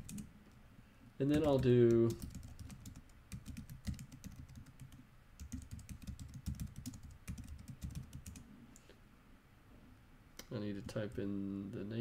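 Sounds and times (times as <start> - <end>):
typing on computer keyboard: 0.0 - 0.3, 1.3 - 8.4.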